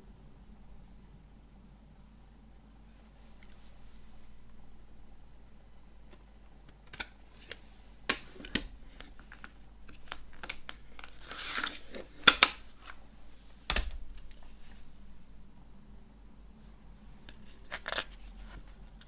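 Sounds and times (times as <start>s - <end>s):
loud plastic snaps: 6.1s - 13.0s.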